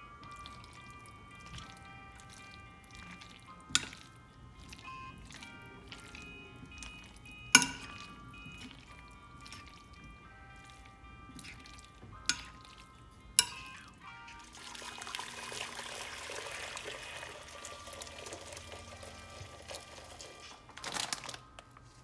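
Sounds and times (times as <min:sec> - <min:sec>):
background music: 0:00.0 - 0:22.0
water pouring into metal pot: 0:14.4 - 0:20.6.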